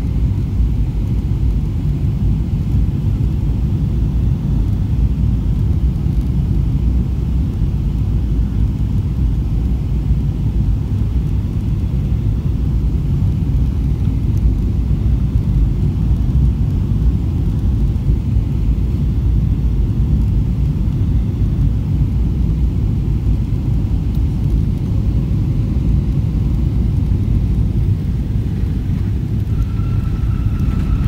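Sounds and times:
airliner engines rumbling: 0.0s - 31.0s
thin steady whine: 0.0s - 31.0s
rushing air: 26.2s - 31.0s.

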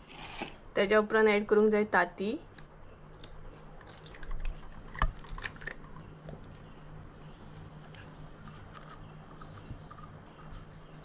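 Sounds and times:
eggshell clicking apart: 2.6s - 6.0s.

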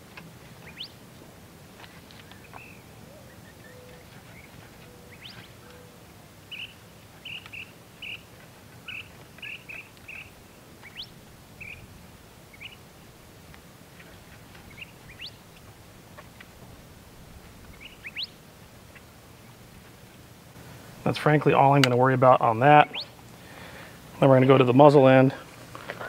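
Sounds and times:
low background noise: 0.0s - 26.0s
birds chirping: 0.4s - 1.0s, 1.8s - 13.0s, 13.9s - 16.5s, 17.4s - 19.6s, 21.1s - 26.0s
rising bird whistles: 17.8s - 18.4s.

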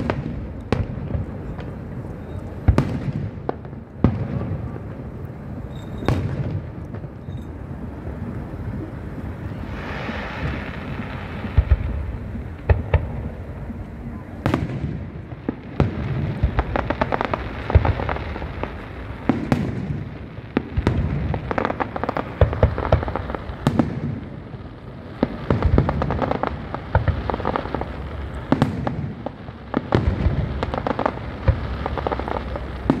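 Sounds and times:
loud firework booms: 0.0s - 1.9s, 2.6s - 7.3s, 9.4s - 13.6s, 14.2s - 33.0s
fireworks crackling and banging: 0.0s - 33.0s.

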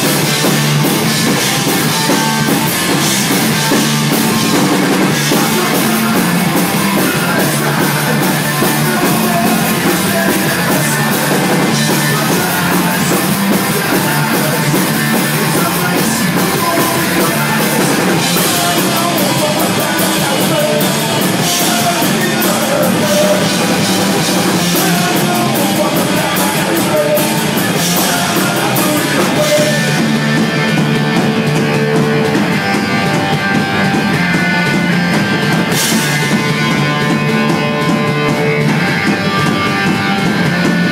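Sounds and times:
lead vocal singing: 0.0s - 32.0s
punk band playing: 0.0s - 40.9s.

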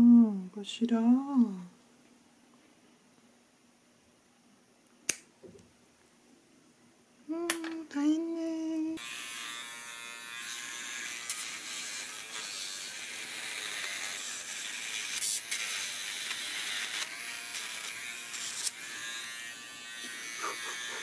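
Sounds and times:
pet nail grinder whirring: 9.0s - 21.0s.

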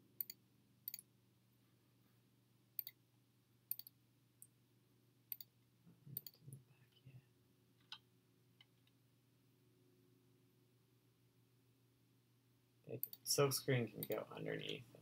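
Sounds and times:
computer mouse clicking: 0.2s - 1.0s, 2.8s - 3.0s, 3.7s - 3.9s, 6.2s - 6.5s, 13.0s - 13.2s, 14.0s - 14.3s.

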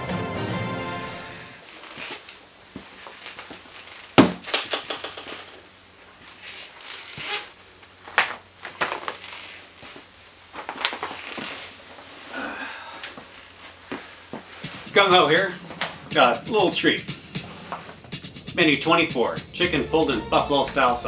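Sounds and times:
gear knocks and scuffs: 1.6s - 4.6s, 5.3s - 16.2s
short metal rattle: 4.4s - 5.6s.

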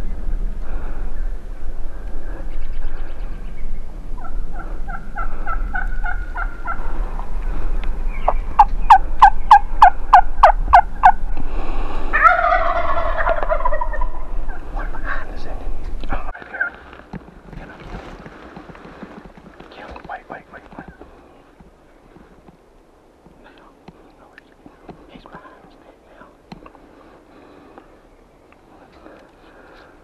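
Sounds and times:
turkey gobbling: 4.2s - 6.9s, 8.2s - 11.2s, 12.1s - 15.2s, 16.2s - 17.0s
turkey yelps: 12.1s - 14.6s.

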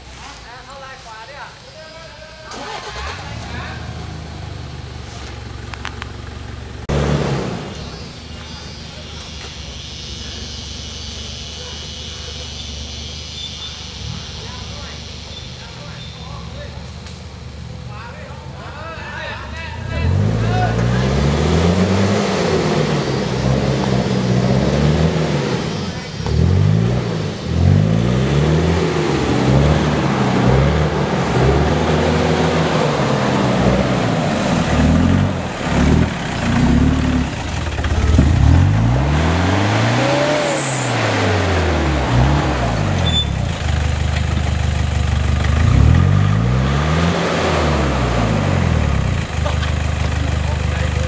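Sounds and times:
pickup engine revving: 2.5s - 17.9s, 19.8s - 51.0s.

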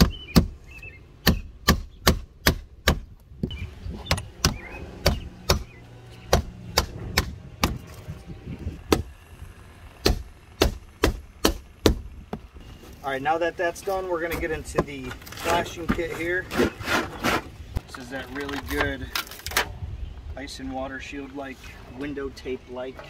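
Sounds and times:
hammer striking nails: 10.0s - 12.1s.

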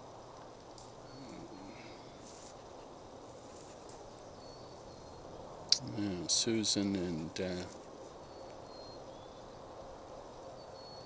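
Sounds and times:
faint steady hiss: 0.0s - 11.0s
soft rustles: 0.6s - 5.0s.

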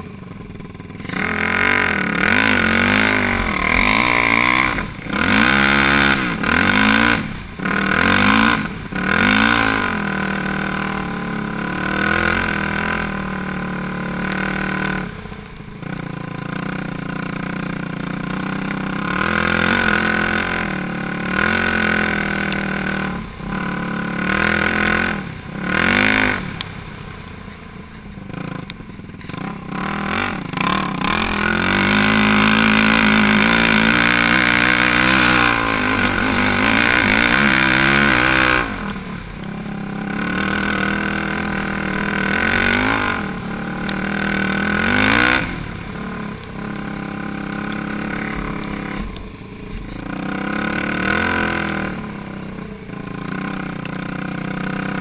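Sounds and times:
quad engine revving: 0.0s - 55.0s.

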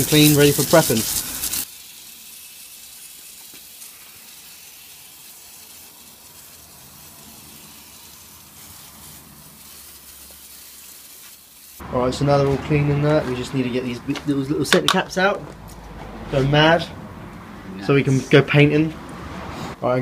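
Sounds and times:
hose spraying water: 0.0s - 13.8s.

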